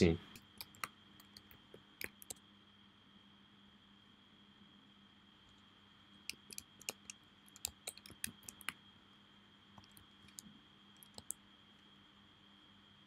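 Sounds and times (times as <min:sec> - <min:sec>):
keyboard typing clicks: 0:00.3 - 0:02.4, 0:06.3 - 0:08.8, 0:11.0 - 0:11.4.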